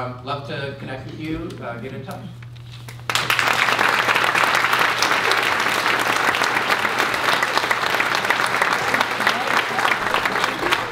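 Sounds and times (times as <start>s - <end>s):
audience applause: 3.1s - 10.9s.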